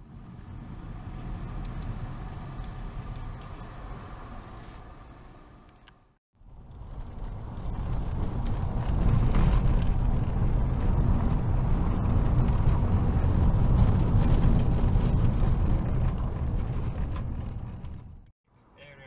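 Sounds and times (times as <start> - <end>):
road and engine rumble in car: 0.0 - 19.0.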